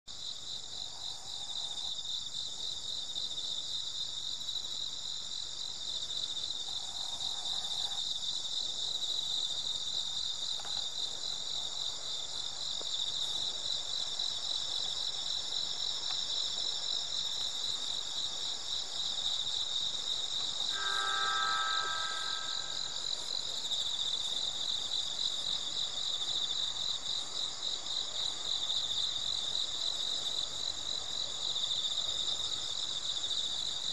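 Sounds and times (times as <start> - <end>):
crickets chirping: 0.1 - 33.9
short pitched tone: 20.7 - 22.8.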